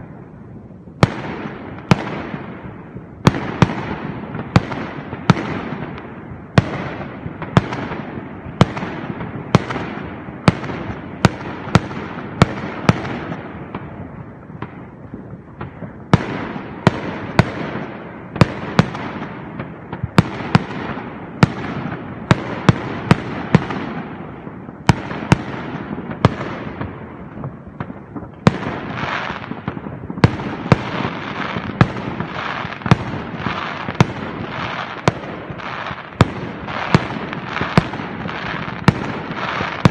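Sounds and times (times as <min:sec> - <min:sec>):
fireworks bangs echoing: 0:00.0 - 0:39.9
fireworks crackling: 0:00.0 - 0:39.9.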